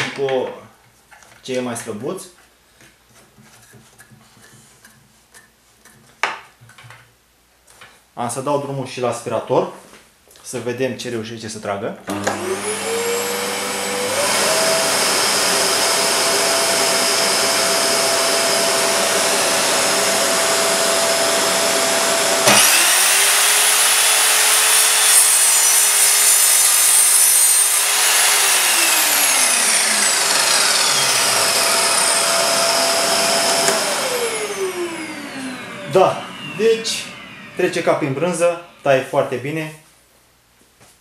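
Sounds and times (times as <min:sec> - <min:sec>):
saw blade cutting wood: 0:12.1 - 0:39.3
mitre saw whining: 0:12.1 - 0:39.6
shop vacuum running: 0:12.1 - 0:39.7.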